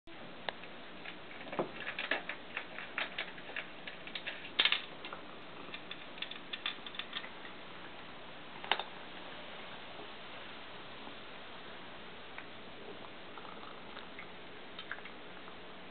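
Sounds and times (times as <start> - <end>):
kibble clicking and rattling: 0.6 - 7.6
kibble clatter: 1.0 - 7.5.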